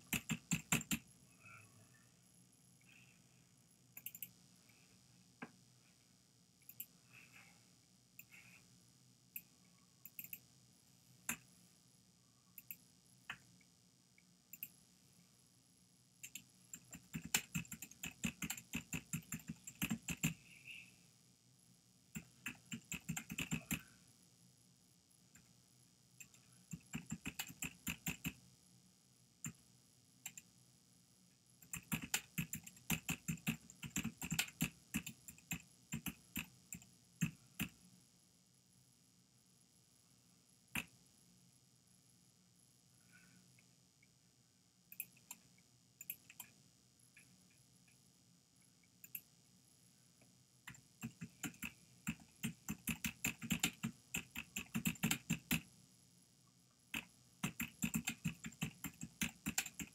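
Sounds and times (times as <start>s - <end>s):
computer keyboard typing: 0.0s - 1.0s, 16.2s - 20.4s, 22.2s - 23.8s, 26.2s - 28.4s, 31.6s - 37.7s, 50.7s - 55.7s, 56.9s - 59.9s.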